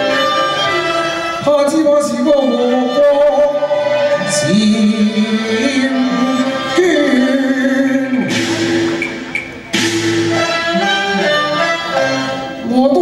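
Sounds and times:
man singing opera into microphone: 1.4 - 8.4.

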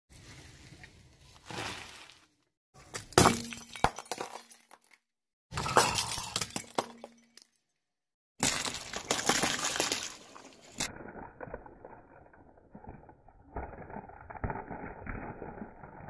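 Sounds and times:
glass shattering: 2.9 - 5.0, 5.6 - 7.6.

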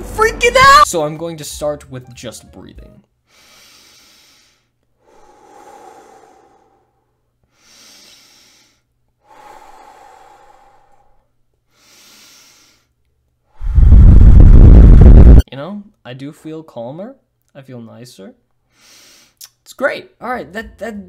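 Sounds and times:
man breathing deeply: 3.2 - 15.3, 18.7 - 19.4.

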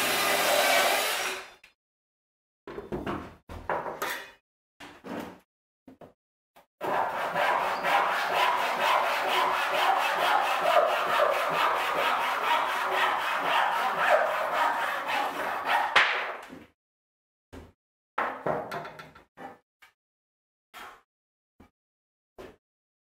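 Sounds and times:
hand saw cutting wood: 0.0 - 1.5, 6.8 - 16.0.

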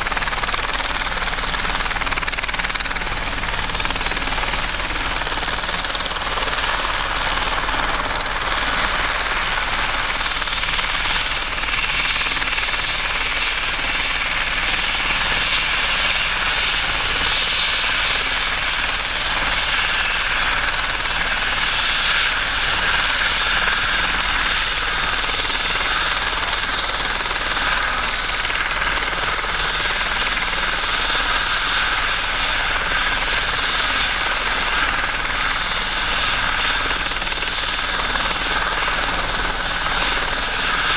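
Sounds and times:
turbine whine rising: 0.0 - 13.0, 30.8 - 40.9
turbine and rotor rush: 0.0 - 40.9.

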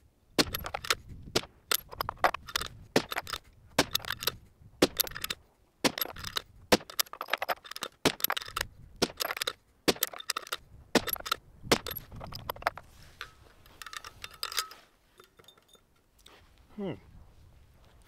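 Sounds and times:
rifle bolt clicking: 0.4 - 12.7
brass cartridges rattling: 0.4 - 12.8, 13.7 - 15.8.

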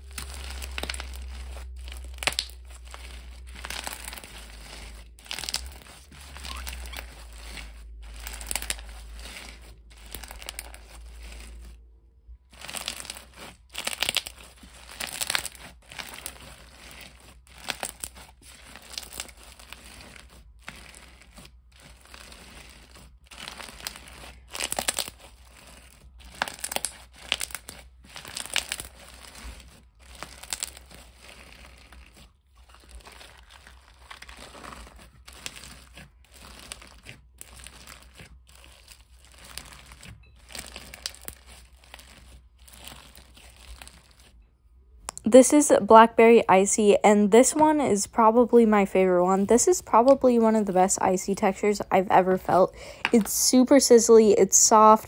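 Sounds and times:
crunchy slime being squeezed: 0.0 - 11.7, 12.4 - 44.4.

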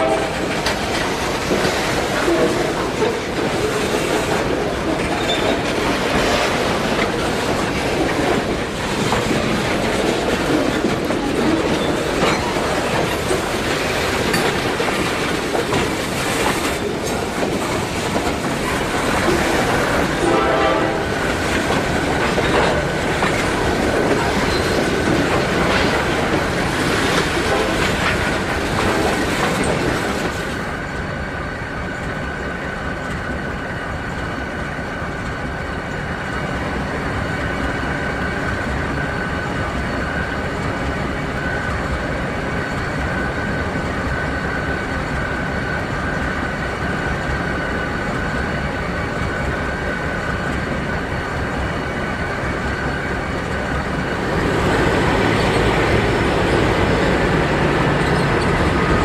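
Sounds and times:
train wheels rumbling and clattering: 0.0 - 59.0
horn-like tone: 20.2 - 21.2.

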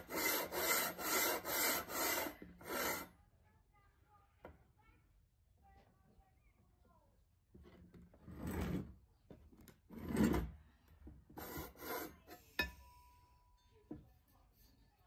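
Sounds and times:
steel bars scraping on wood: 0.0 - 3.1, 9.9 - 10.6, 11.4 - 12.6
ringing metal knock: 12.6 - 14.0.

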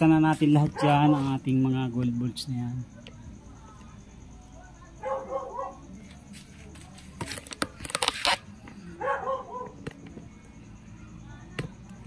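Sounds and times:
dog barking: 0.6 - 1.4, 5.0 - 5.8, 9.0 - 9.8.

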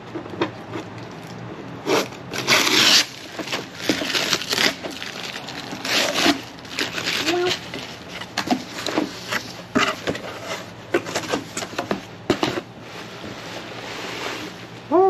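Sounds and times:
packing paper rustling: 1.0 - 14.8
cardboard box tearing: 1.8 - 12.6.

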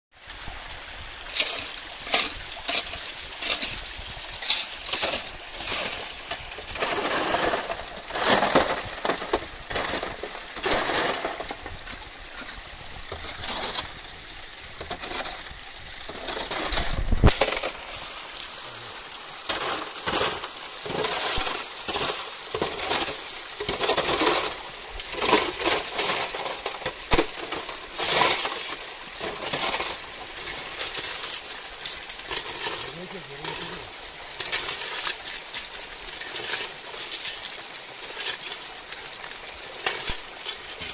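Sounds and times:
water splashing and pouring: 0.1 - 40.9
small stones clinking and rattling: 1.3 - 18.5.

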